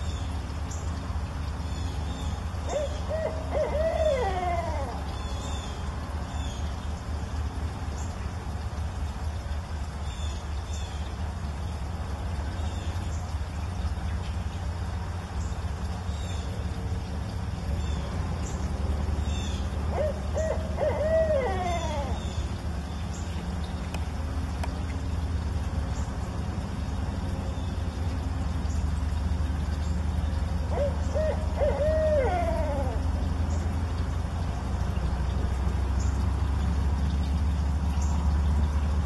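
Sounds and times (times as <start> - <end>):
owls hooting: 2.6 - 5.6, 19.4 - 22.6, 30.6 - 33.4.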